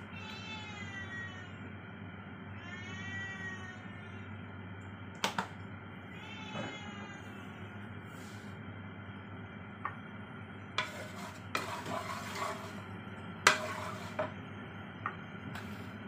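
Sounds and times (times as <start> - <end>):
wooden spatula scraping wok: 10.8 - 14.4.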